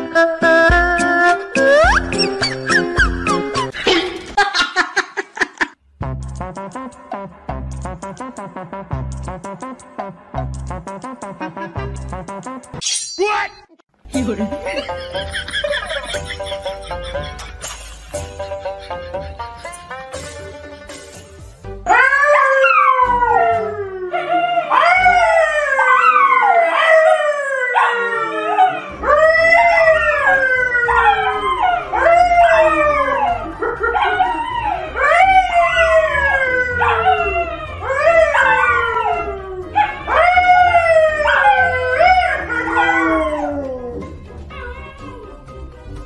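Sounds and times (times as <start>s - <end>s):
dog howling: 21.9s - 45.4s.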